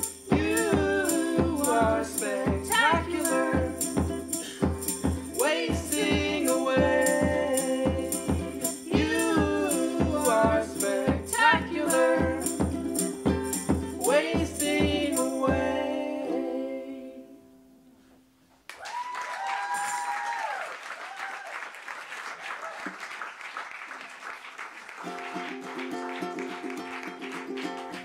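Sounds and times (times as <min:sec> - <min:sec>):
woman singing: 0:00.0 - 0:12.7, 0:13.9 - 0:17.4
steady percussion beat: 0:00.0 - 0:15.9
ukulele strumming: 0:00.0 - 0:17.8, 0:25.0 - 0:28.0
applause and cheering: 0:18.7 - 0:28.0.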